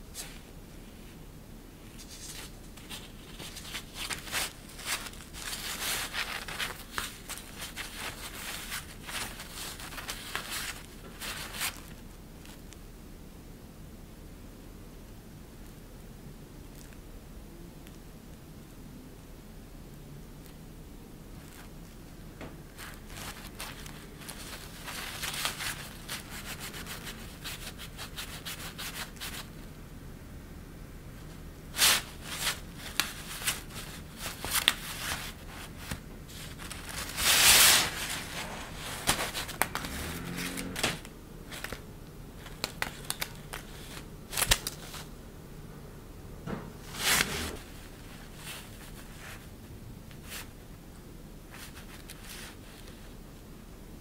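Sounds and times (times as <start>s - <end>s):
synthetic fabric rustling: 1.8s - 12.0s, 22.6s - 29.5s, 31.7s - 41.8s.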